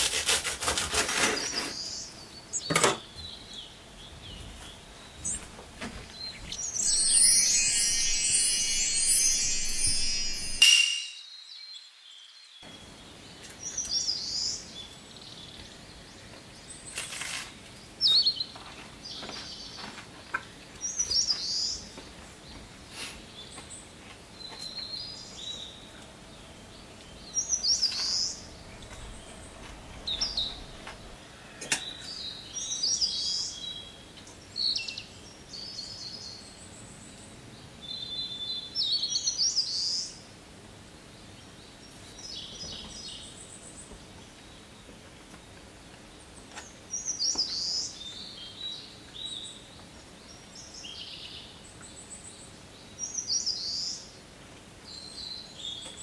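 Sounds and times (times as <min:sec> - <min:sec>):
small birds chirping: 0:01.4 - 0:17.0, 0:17.6 - 0:40.2, 0:41.0 - 0:54.2
sparkling jingle: 0:06.6 - 0:11.4.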